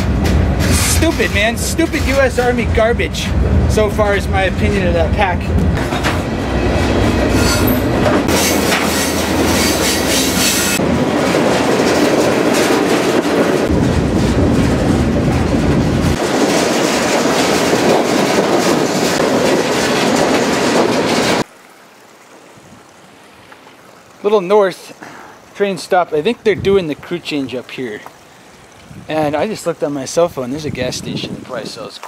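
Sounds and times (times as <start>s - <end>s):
steel wheels clattering over rails: 0.0s - 21.5s
train car rattling and rumbling: 0.0s - 21.5s.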